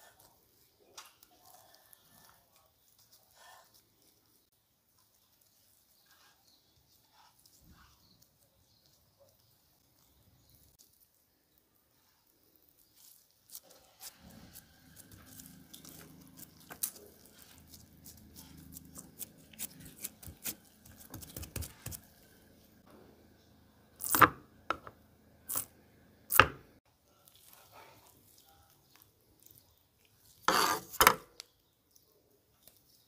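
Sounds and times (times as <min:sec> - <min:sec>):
hands squishing ground meat: 0:00.0 - 0:22.4, 0:27.0 - 0:30.5
gloves crackling on meat: 0:04.9 - 0:22.3.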